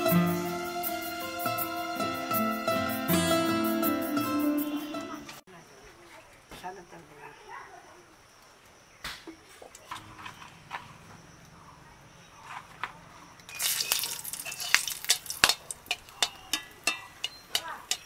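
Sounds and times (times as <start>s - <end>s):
hot oil sizzling and spitting: 13.5s - 18.0s
metal spatula clicking on pan: 14.4s - 18.0s.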